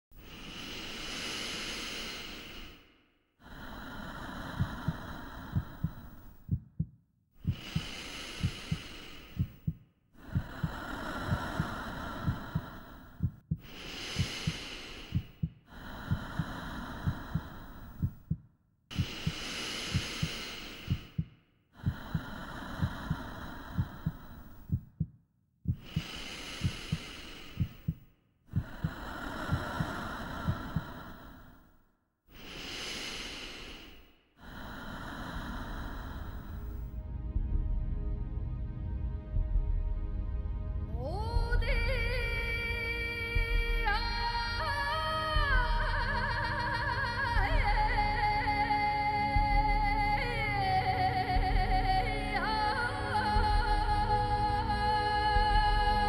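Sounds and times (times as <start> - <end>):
slow deep breathing: 0.1 - 38.3
heartbeat: 4.3 - 31.5, 39.3 - 39.8, 41.3 - 46.7, 47.3 - 48.3, 49.3 - 50.6, 51.4 - 52.0, 53.4 - 54.1, 55.3 - 56.0.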